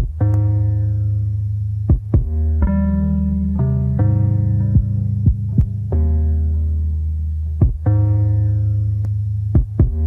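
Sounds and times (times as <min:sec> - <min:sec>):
held deep bass note: 0:00.0 - 0:10.0
deep kick drum hits: 0:01.9 - 0:02.8, 0:04.6 - 0:06.0, 0:07.6 - 0:08.0, 0:09.6 - 0:10.0.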